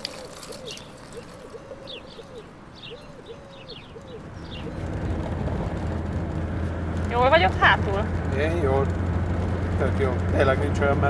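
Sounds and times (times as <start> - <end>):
birds calling and chirping: 0.0 - 11.0
car engine humming: 3.7 - 11.0.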